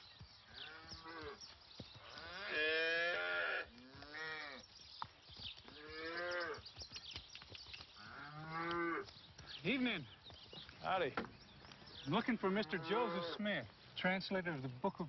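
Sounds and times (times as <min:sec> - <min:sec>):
cattle mooing: 0:12.6 - 0:13.4.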